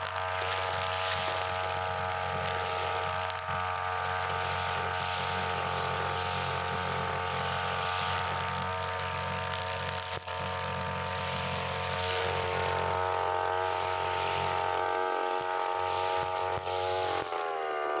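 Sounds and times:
brush cutter engine running: 0.0s - 18.0s.

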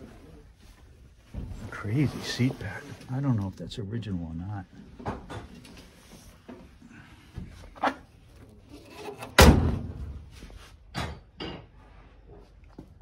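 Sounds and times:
car door slamming shut: 9.4s - 10.0s.

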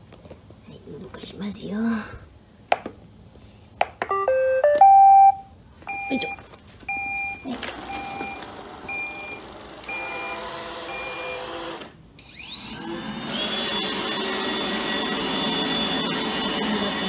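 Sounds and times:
short beeps: 4.1s - 10.3s
robot vacuum motor whine: 7.6s - 17.0s.

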